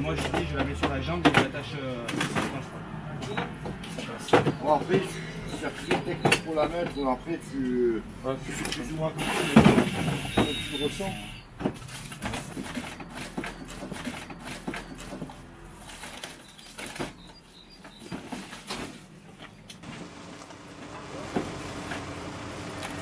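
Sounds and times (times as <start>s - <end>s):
gear clicking and knocking: 11.6s - 18.5s
faint bird chirps: 16.3s - 18.5s.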